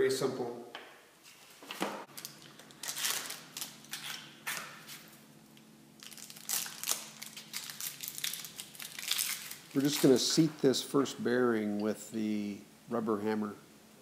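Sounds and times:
plastic wrappers crinkling: 2.1 - 5.2, 6.0 - 10.6.

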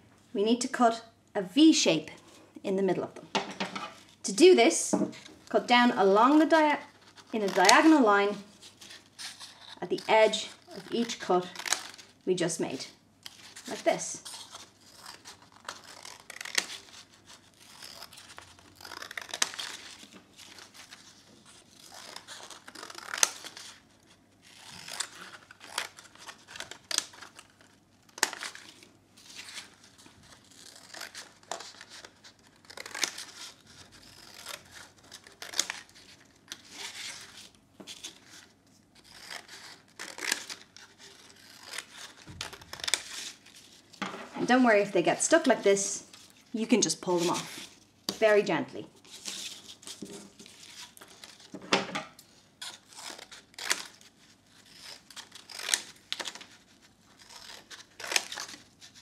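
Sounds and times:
scissors cutting paper plate: 7.3 - 8.1.

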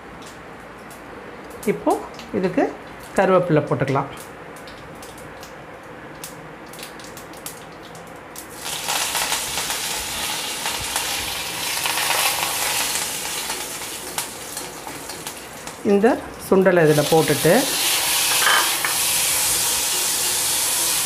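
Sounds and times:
leaves sizzling in hot oil: 6.8 - 21.0.

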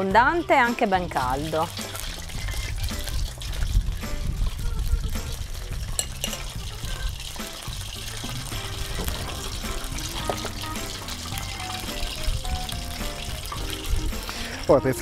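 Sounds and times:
background music: 0.0 - 15.0
deep-frying sizzle with crackles: 0.0 - 15.0.

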